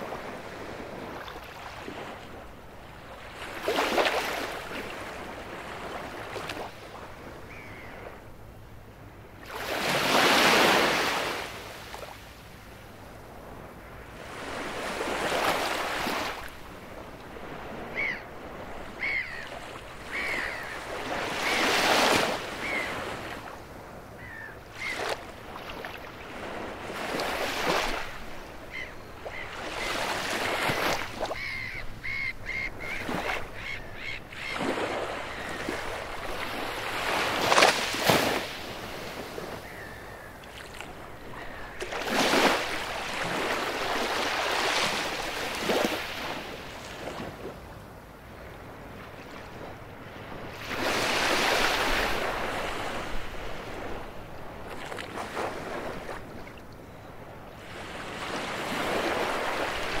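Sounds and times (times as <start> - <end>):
waves washing onto beach: 0.0 - 7.2, 34.5 - 47.7, 57.6 - 60.0.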